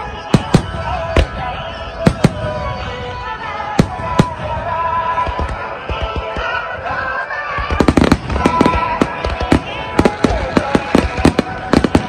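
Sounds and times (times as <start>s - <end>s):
music playing: 0.0s - 12.0s
firework shells bursting: 7.7s - 12.0s.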